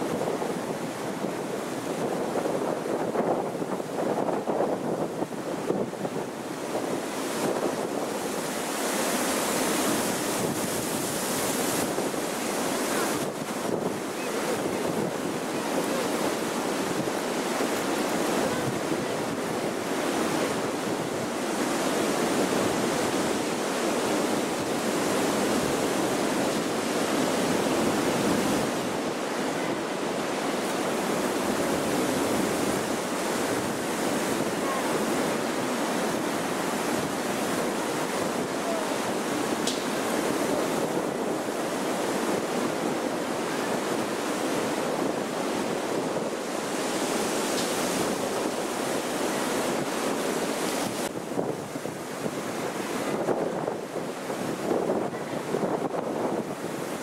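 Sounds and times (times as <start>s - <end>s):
strong wind blowing: 0.0s - 57.0s.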